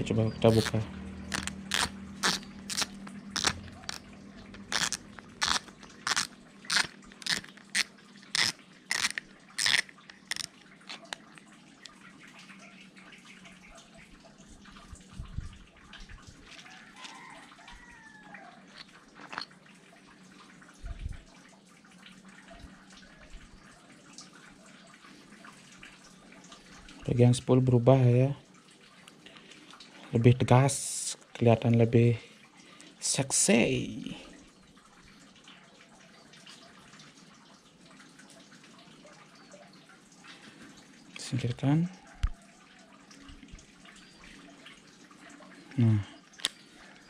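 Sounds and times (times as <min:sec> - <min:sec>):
reel handling: 0:00.5 - 0:12.0, 0:18.7 - 0:19.6.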